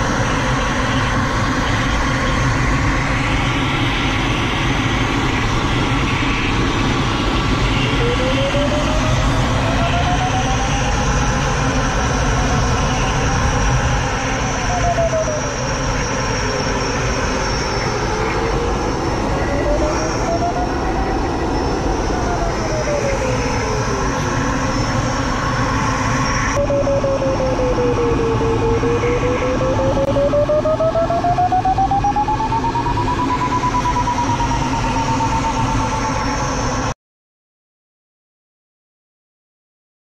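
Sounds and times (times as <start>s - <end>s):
variometer tone sliding in pitch: 17.6s - 24.0s, 26.5s - 36.4s.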